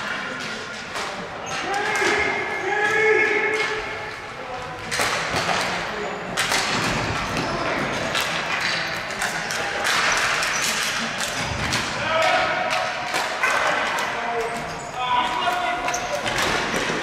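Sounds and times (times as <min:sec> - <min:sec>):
hockey sticks and ball clacking: 0:00.0 - 0:17.0
players shouting: 0:01.5 - 0:04.2.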